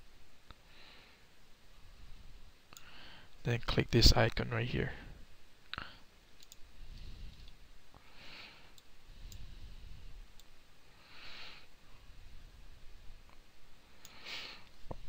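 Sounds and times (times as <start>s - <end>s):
low steady hum: 0.0s - 15.0s
computer mouse clicks: 6.4s - 6.6s.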